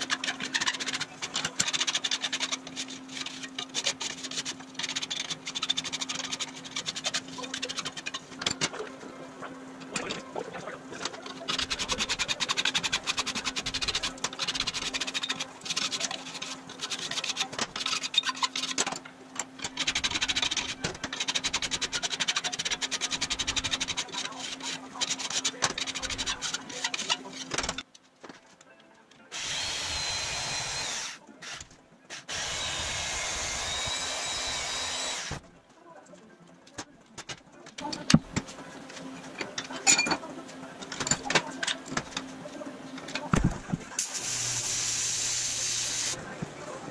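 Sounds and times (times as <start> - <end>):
hand file rasping on metal: 0.0 - 8.4, 11.4 - 18.8, 19.7 - 27.6
small power tool running: 29.3 - 31.2, 32.3 - 35.4.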